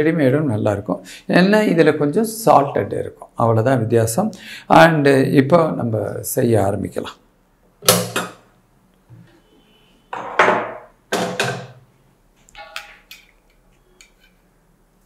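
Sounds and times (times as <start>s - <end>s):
frying pan knocking and scraping: 10.2s - 11.8s.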